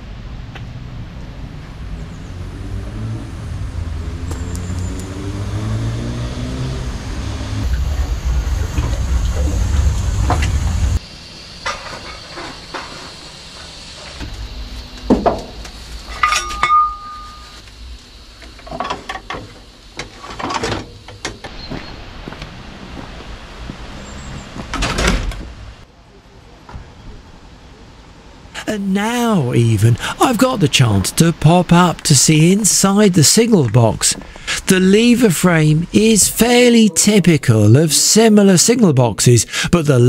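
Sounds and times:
metallic clanks and knocks: 0:15.1 - 0:17.6.

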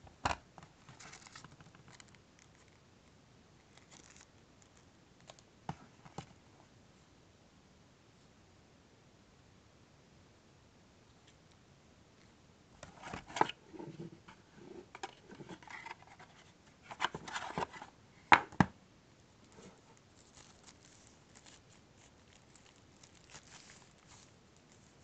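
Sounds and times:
plastic packaging crinkling: 0:00.9 - 0:02.8, 0:03.7 - 0:05.4, 0:19.5 - 0:25.0.

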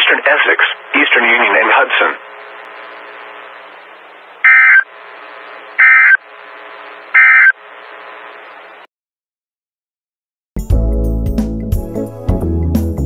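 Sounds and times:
radio hiss: 0:00.0 - 0:08.9.

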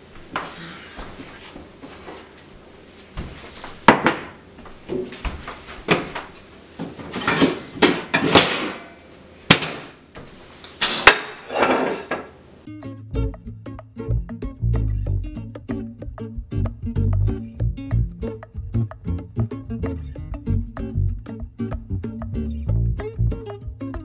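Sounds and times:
acoustic guitar music: 0:12.6 - 0:24.0.

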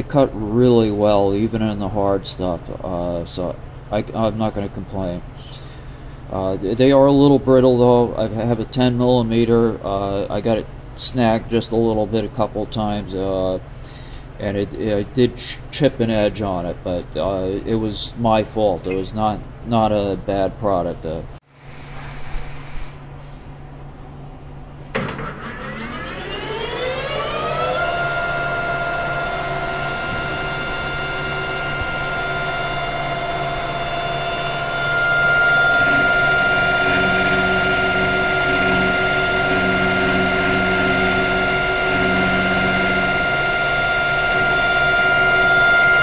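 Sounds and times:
lathe motor whining: 0:24.9 - 0:46.0
lathe tool cutting steel: 0:24.9 - 0:46.0.

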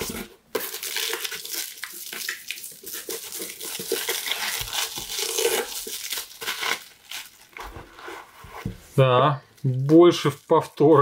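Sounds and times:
plastic wrapping crinkling: 0:00.0 - 0:08.2.

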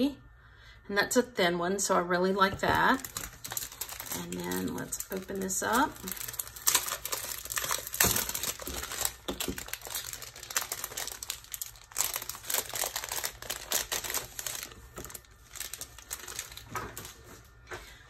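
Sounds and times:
packaging crinkling and rustling: 0:02.6 - 0:17.6.

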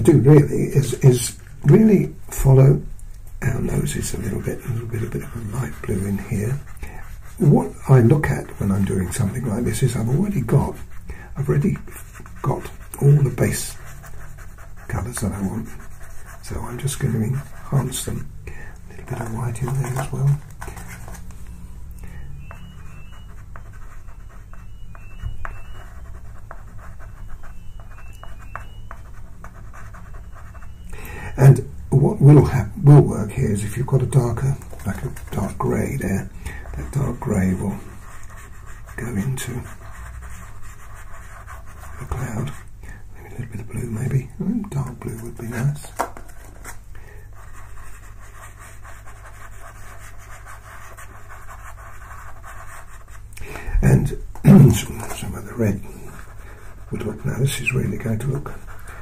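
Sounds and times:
pastel scratching on paper: 0:03.5 - 0:18.1, 0:22.4 - 0:30.8, 0:34.1 - 0:42.7, 0:45.9 - 0:53.3.

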